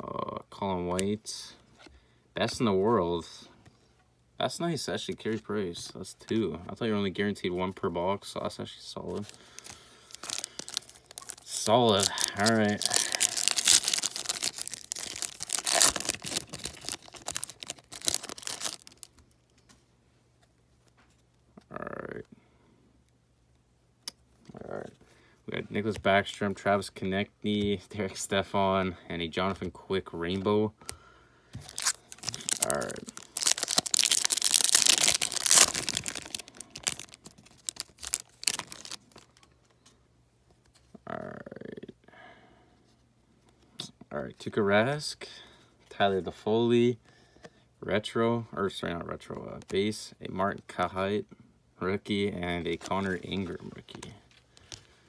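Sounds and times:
foil wrapper crinkling: 0:09.2 - 0:19.3, 0:31.6 - 0:39.5.

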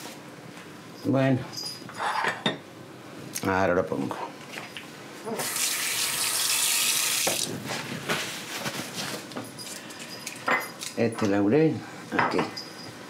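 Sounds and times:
kitchen tap running: 0:05.4 - 0:07.5
light knocks and clinks: 0:12.2 - 0:13.0.

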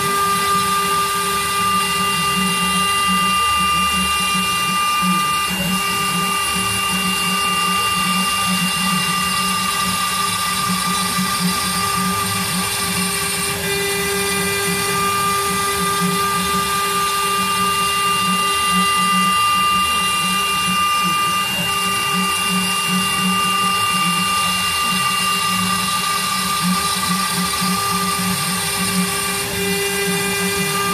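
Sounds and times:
bit carving wood: 0:00.0 - 0:30.9
router spindle whining: 0:00.0 - 0:30.9.

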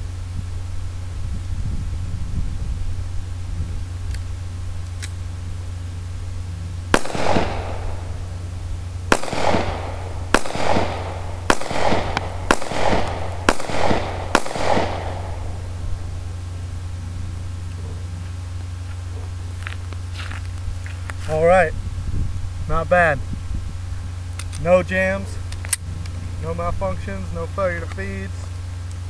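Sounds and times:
pistol shots with echo: 0:06.9 - 0:16.2.

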